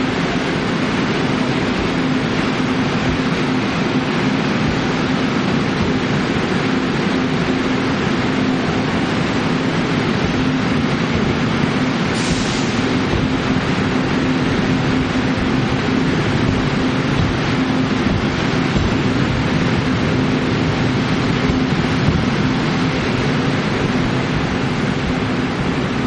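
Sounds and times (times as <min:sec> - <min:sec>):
low hum: 0:00.0 - 0:26.0
train wheels on rail: 0:00.0 - 0:26.0.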